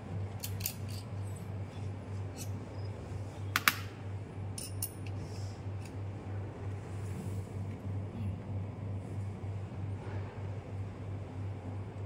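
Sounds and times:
metal parts clinking on workbench: 0:00.4 - 0:01.2, 0:04.6 - 0:05.1.

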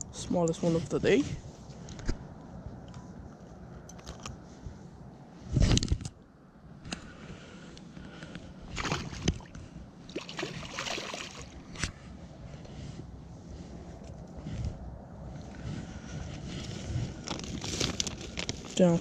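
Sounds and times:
water splashing and sloshing: 0:08.7 - 0:12.0.

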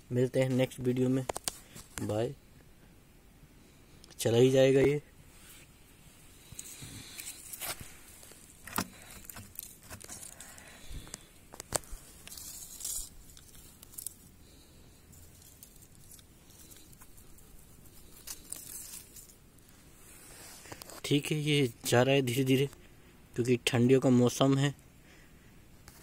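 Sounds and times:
dry leaves crackling and rustling: 0:11.7 - 0:19.4.

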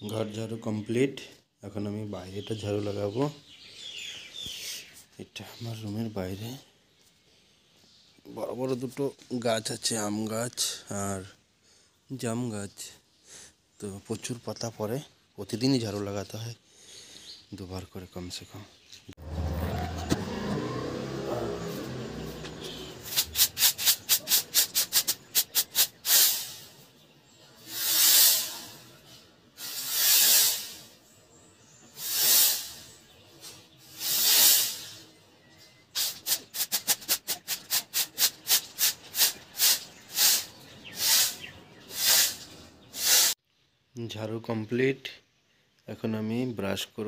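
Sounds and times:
motorbike passing: 0:19.2 - 0:23.7
broom sweeping tiled floor: 0:19.2 - 0:26.9, 0:27.6 - 0:31.0, 0:31.8 - 0:35.1, 0:36.0 - 0:43.4.

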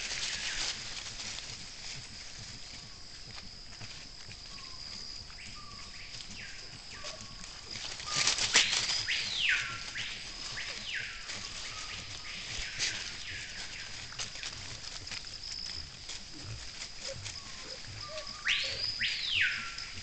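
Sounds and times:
animals foraging in leaf litter: 0:00.0 - 0:20.0
short falling whistled calls: 0:17.4 - 0:19.9.

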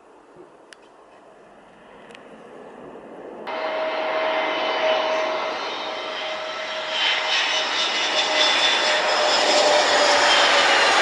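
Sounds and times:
jet engines on approach: 0:00.0 - 0:11.0.

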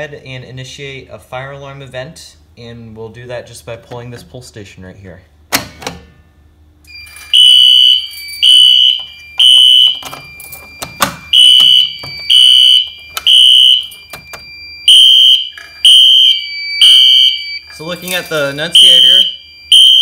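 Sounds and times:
fire alarm horn beeps: 0:06.9 - 0:17.8, 0:18.6 - 0:20.0.

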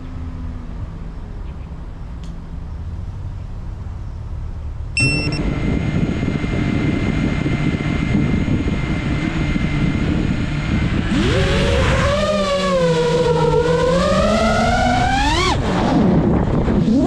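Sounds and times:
drone beep: 0:05.0 - 0:05.5
drone propellers whirring: 0:05.0 - 0:17.0.

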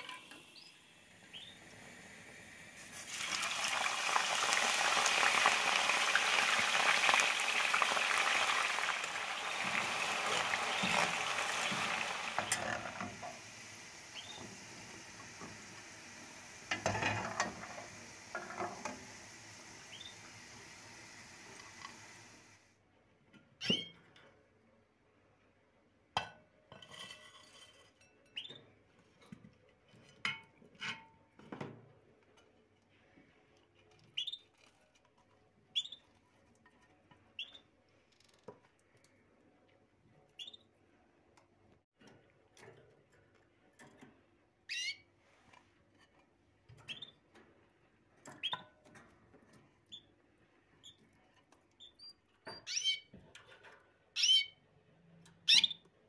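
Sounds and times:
small bird chirping: 0:00.4 - 0:01.6, 0:14.1 - 0:14.4, 0:34.1 - 0:34.5, 0:35.7 - 0:36.0, 0:40.4 - 0:40.7, 0:44.7 - 0:45.0, 0:46.9 - 0:47.2, 0:51.8 - 0:53.1, 0:54.2 - 0:54.6, 0:55.4 - 0:55.8.

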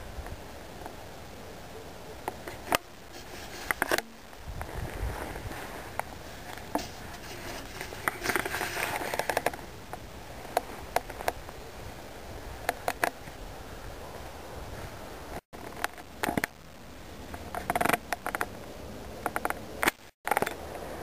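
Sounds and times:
handling rustling: 0:02.3 - 0:09.7.

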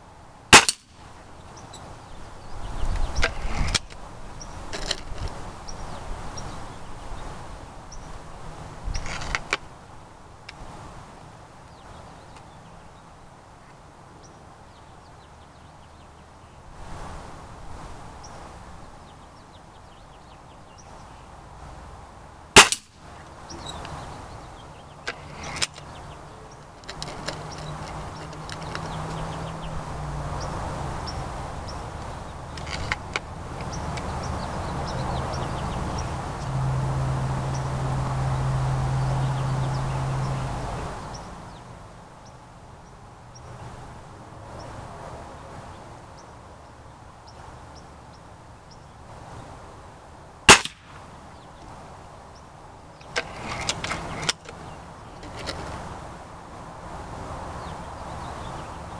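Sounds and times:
air rifle shot: 0:00.6 - 0:00.9, 0:22.6 - 0:22.9, 0:50.5 - 0:51.0
low steady drone: 0:35.0 - 0:40.8.

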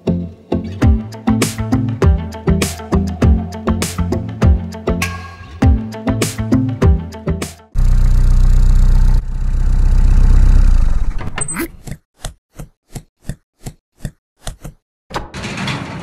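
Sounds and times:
cartoon engine running: 0:07.8 - 0:11.1.

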